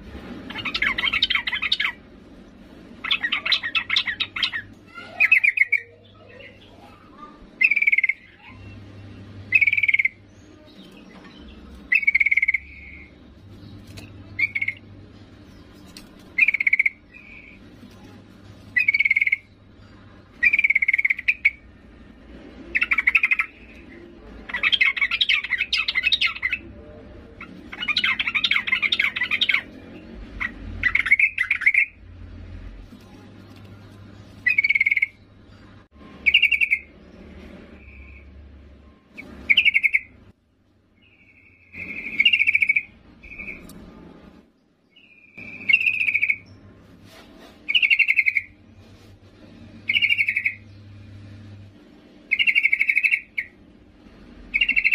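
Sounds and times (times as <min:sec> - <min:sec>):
bird chattering: 0:00.5 - 0:02.1, 0:03.0 - 0:08.8, 0:09.4 - 0:13.2, 0:14.1 - 0:14.9, 0:15.7 - 0:17.8, 0:18.7 - 0:21.7, 0:22.7 - 0:32.0, 0:34.4 - 0:35.3, 0:36.2 - 0:36.9, 0:39.2 - 0:40.3, 0:41.0 - 0:43.7, 0:45.0 - 0:46.6, 0:47.7 - 0:48.6, 0:49.8 - 0:50.7, 0:52.3 - 0:53.6, 0:54.5 - 0:54.9.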